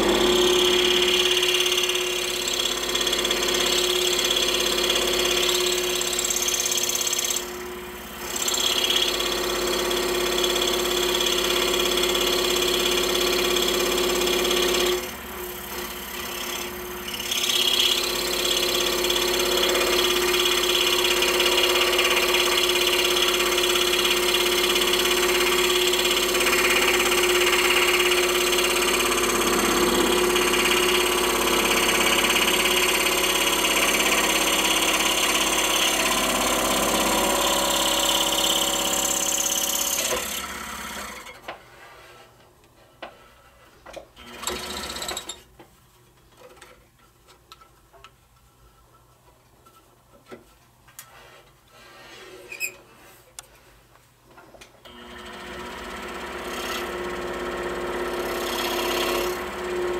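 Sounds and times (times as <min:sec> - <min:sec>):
scroll saw cutting wood: 0:00.0 - 0:41.5, 0:44.2 - 0:45.4, 0:54.8 - 0:59.9.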